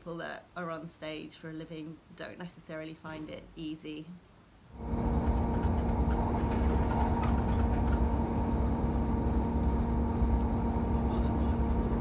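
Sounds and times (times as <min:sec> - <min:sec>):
constant hum: 0:00.0 - 0:12.0
train carriage rumble: 0:04.8 - 0:12.0.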